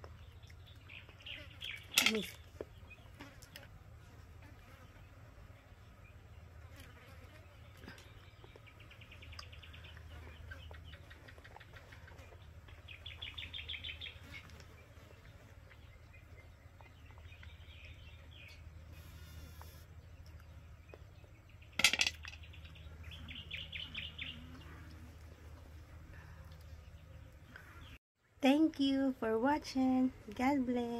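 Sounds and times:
quiet steady hum: 0.0 - 30.9.

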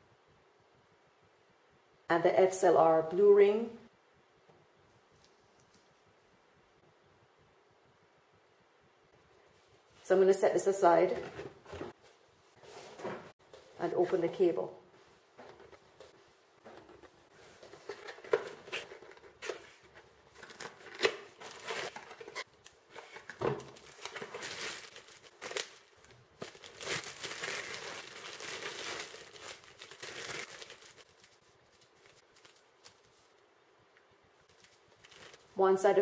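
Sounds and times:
plastic bag crinkling and tearing: 17.6 - 33.2, 34.5 - 35.6.

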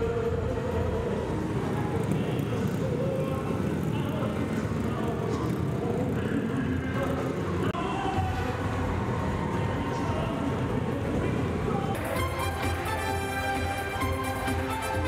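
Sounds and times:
crowd noise: 0.0 - 15.0
faint band music: 7.8 - 15.0.

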